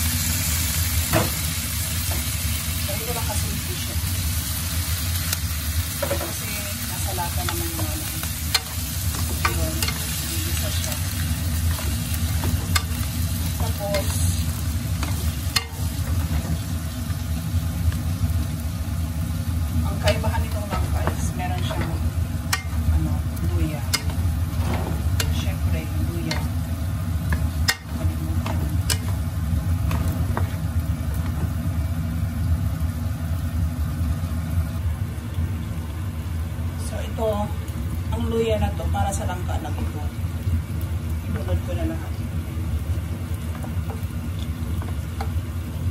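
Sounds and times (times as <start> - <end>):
food sizzling in a pan: 0.0 - 45.9
spatula scraping wok: 23.8 - 29.2
spatula tapping pan: 23.9 - 24.2, 27.3 - 29.2.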